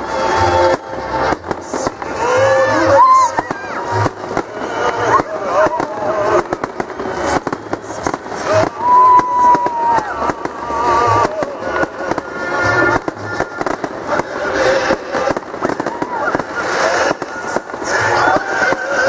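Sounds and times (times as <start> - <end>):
crackling firework bursts: 0.0 - 19.0.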